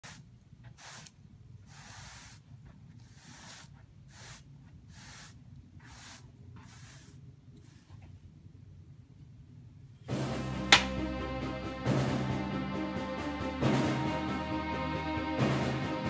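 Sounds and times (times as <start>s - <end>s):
short faint hisses: 3.1s - 7.9s.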